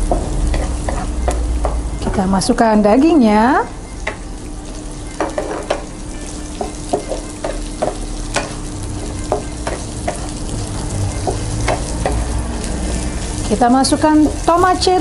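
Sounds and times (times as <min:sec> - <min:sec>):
food sizzling in oil: 0:00.0 - 0:15.0
spatula tapping and scraping pan: 0:00.1 - 0:01.8, 0:05.2 - 0:05.9, 0:06.5 - 0:08.6, 0:09.2 - 0:10.4, 0:11.2 - 0:12.2.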